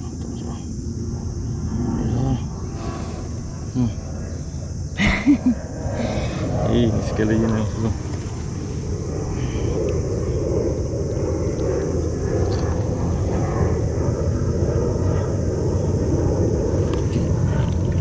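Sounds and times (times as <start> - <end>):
high hiss: 0.0 - 13.6
wind buffeting microphone: 0.0 - 18.0.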